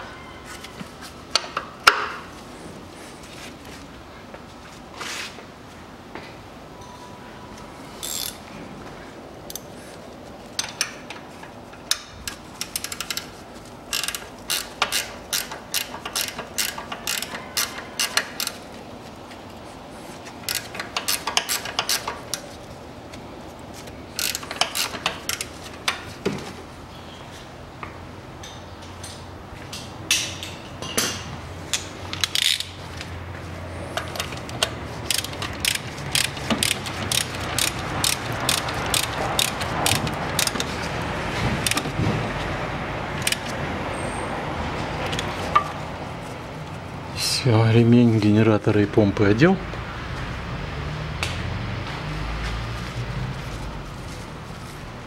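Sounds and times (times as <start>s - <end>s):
ratchet wrench clicking: 8.0s - 8.4s, 11.9s - 13.3s, 13.9s - 18.6s, 20.5s - 22.4s, 24.2s - 25.5s, 31.7s - 32.8s, 34.0s - 40.7s.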